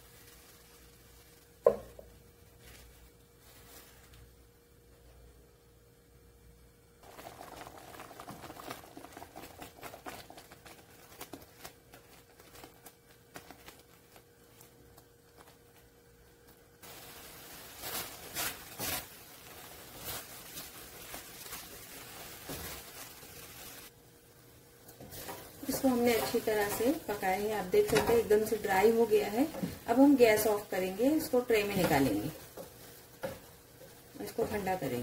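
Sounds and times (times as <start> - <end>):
thick mixture popping: 7.0 - 16.8
spatula stirring and scraping pan: 24.9 - 35.0.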